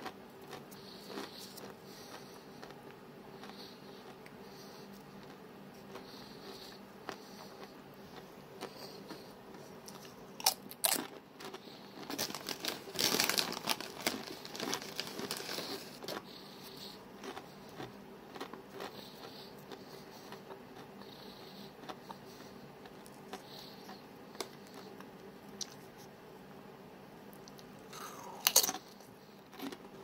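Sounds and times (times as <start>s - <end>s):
person chewing: 0.0s - 25.9s, 27.3s - 30.0s
person crunching a chip: 10.0s - 16.2s, 27.9s - 28.8s.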